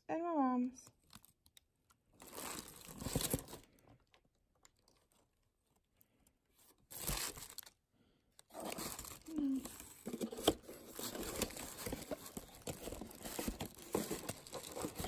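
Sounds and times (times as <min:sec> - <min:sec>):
cardboard box and paper handled: 0:02.2 - 0:03.7, 0:06.6 - 0:07.7, 0:08.5 - 0:15.0.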